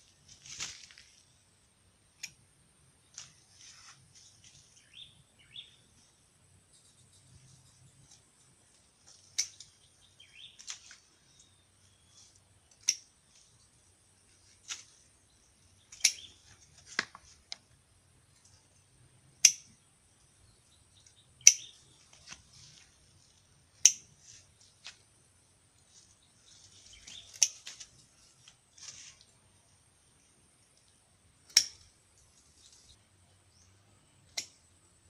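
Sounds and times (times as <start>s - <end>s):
pruning shears snipping stems: 2.1s - 2.4s, 9.0s - 9.8s, 12.7s - 13.5s, 15.9s - 17.6s, 26.8s - 29.3s, 31.4s - 32.0s.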